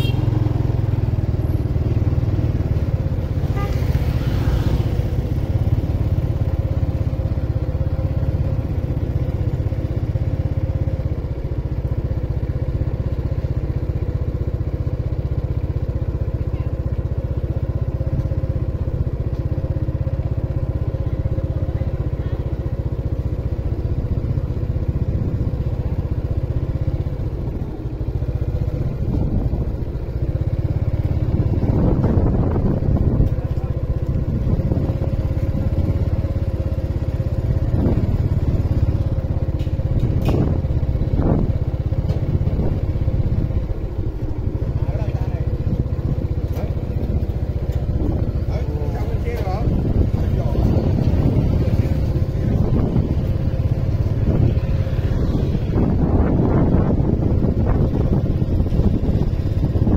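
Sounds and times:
motorbike engine running: 0.0s - 59.9s
scooter passing: 0.0s - 59.9s
wind and road rumble: 0.0s - 59.9s.

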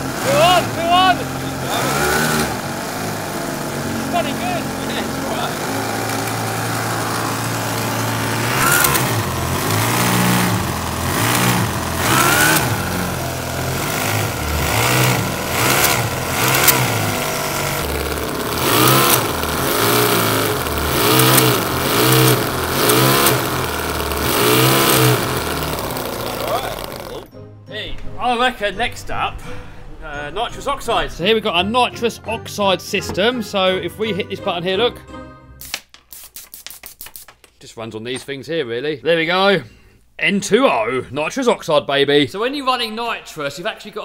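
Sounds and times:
model engine revving: 0.0s - 27.3s.

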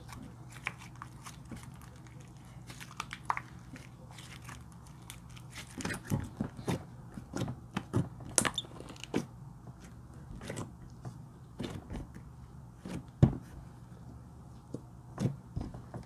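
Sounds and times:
slime squishing with wet pops: 0.0s - 9.2s.

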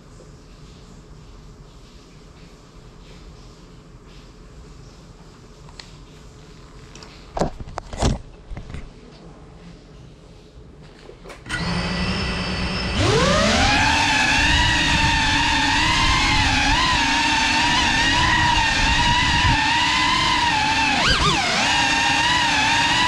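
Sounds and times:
drone motors whining: 11.5s - 23.0s.

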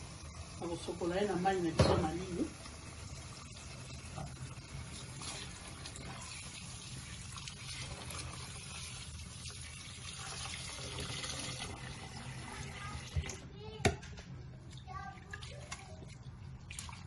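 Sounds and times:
leaves rinsed by hand: 0.0s - 13.4s
tap water filling a pot: 0.0s - 14.0s, 14.7s - 17.0s.

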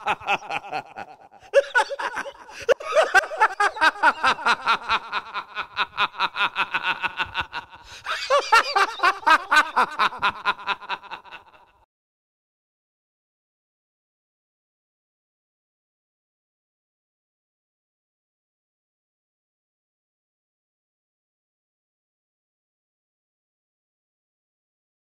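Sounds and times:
rapid cackling laughter: 0.0s - 11.8s.

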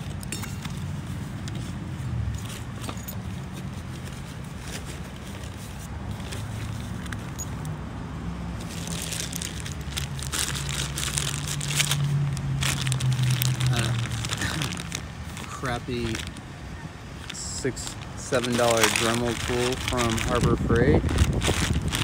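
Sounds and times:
tools handled in fabric bag: 0.0s - 7.7s, 8.6s - 16.4s, 17.1s - 22.0s
plastic bag crinkling: 8.6s - 22.0s.

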